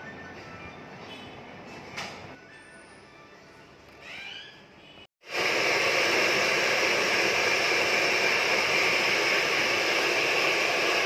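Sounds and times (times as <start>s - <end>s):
hair dryers blowing: 5.2s - 11.0s.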